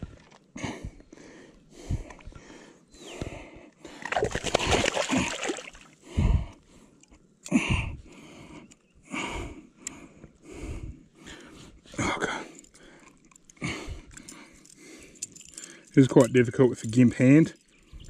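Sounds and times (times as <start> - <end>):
water splashing and sloshing: 4.0 - 6.0.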